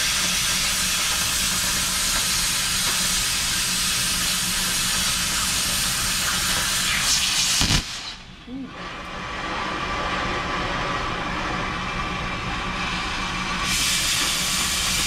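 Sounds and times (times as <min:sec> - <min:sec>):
cutting torch hissing: 0:00.0 - 0:08.3, 0:12.8 - 0:15.0.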